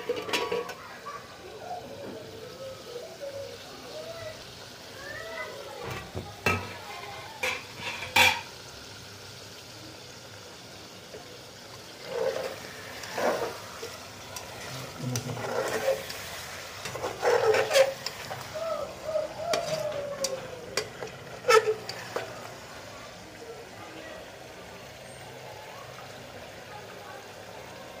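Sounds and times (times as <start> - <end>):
curry sizzling: 0.0 - 28.0
spoon scraping pot: 12.0 - 22.5.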